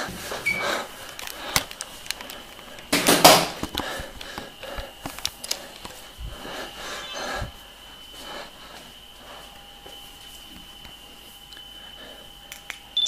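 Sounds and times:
faint high tone: 0:07.0 - 0:07.4.

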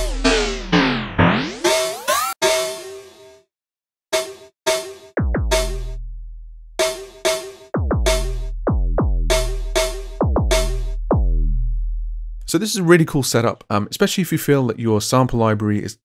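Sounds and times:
booming electronic kick drum: 0:00.0 - 0:01.4, 0:05.2 - 0:06.1, 0:06.8 - 0:11.6
electronic snare hits: 0:00.0 - 0:02.8.

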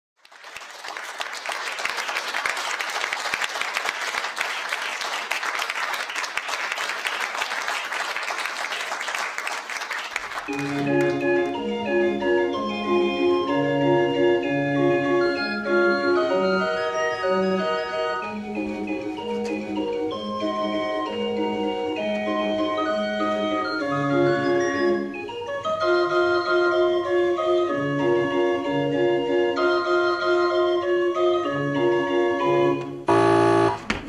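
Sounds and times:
audience applauding: 0:00.2 - 0:11.7
keyboard music with bass line: 0:10.5 - 0:33.8.

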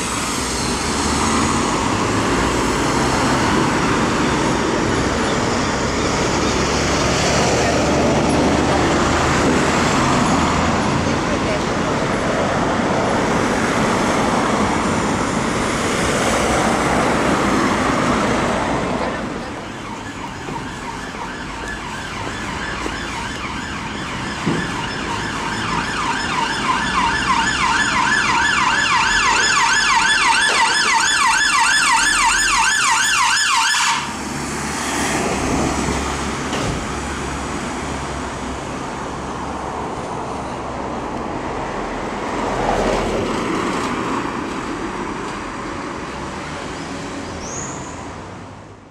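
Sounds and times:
street traffic noise: 0:00.0 - 0:48.9
ambulance siren sweeping: 0:13.3 - 0:37.7.

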